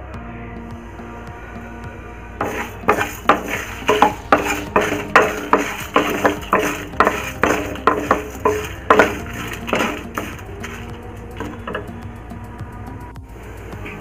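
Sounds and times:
wooden spatula scraping a pan: 0:02.4 - 0:11.9.

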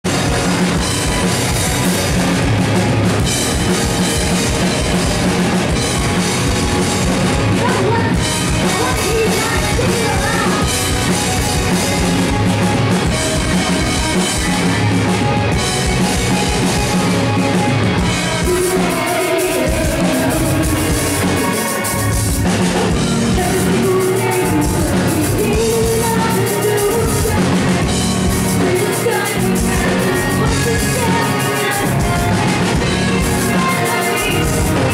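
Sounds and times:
rock band playing live: 0:00.0 - 0:34.9
person singing: 0:07.5 - 0:12.1, 0:18.1 - 0:34.9.

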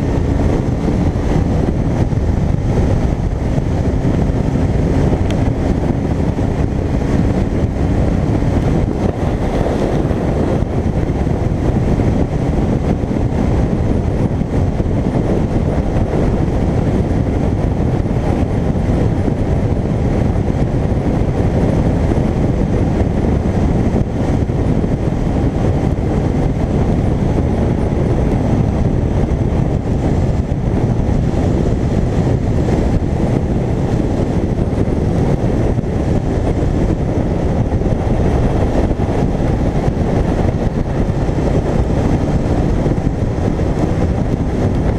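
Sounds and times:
motorcycle engine: 0:00.0 - 0:44.9
road noise: 0:00.0 - 0:44.9
wind rush over microphone: 0:00.0 - 0:44.9.

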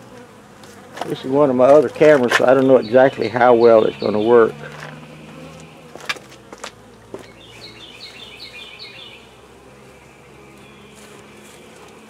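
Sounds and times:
bees buzzing: 0:00.0 - 0:12.0
bird chirping: 0:02.5 - 0:05.9, 0:07.2 - 0:11.8.

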